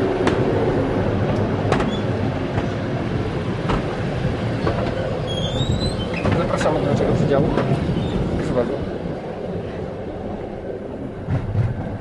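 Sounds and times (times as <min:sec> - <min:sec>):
train running rumble: 0:00.0 - 0:12.0.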